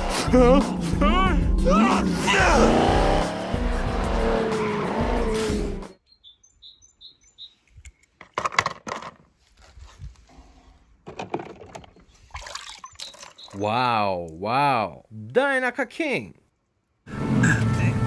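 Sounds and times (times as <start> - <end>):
car engine revving hard: 0.0 - 5.9
bird chirps: 5.9 - 7.8, 12.8 - 13.6.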